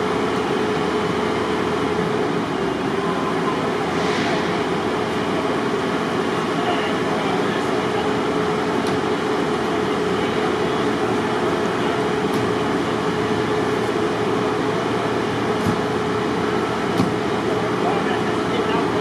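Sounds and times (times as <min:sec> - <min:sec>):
machinery drone: 0:00.0 - 0:08.7.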